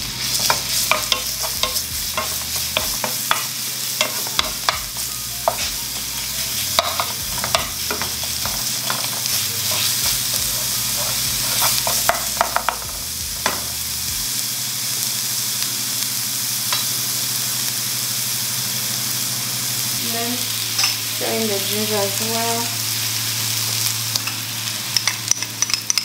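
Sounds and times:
garlic sizzling in a pan: 0.0s - 26.0s
wooden spoon scraping a pan: 6.5s - 12.8s
spoon tapping against a pan: 6.8s - 9.2s, 11.6s - 13.6s, 25.0s - 26.0s.

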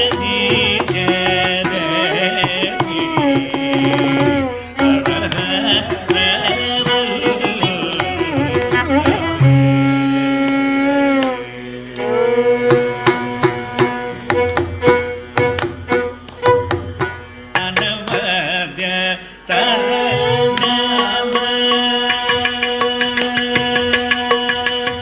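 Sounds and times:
steady drone: 4.1s - 25.0s
drum strokes: 12.5s - 18.3s, 20.1s - 25.0s.

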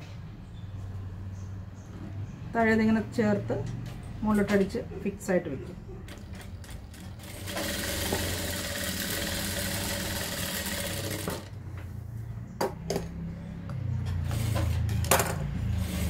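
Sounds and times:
sewing machine stitching: 6.1s - 11.5s.

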